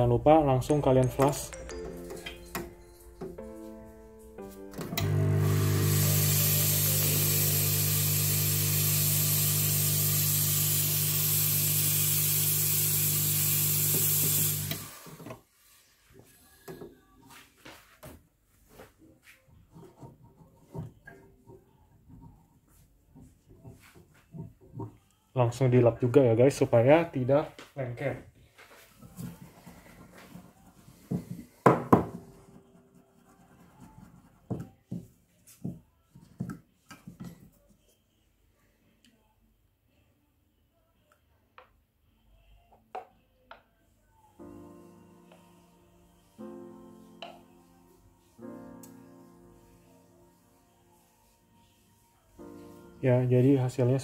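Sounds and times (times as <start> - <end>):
steam hissing from espresso wand: 5.3 - 15.2.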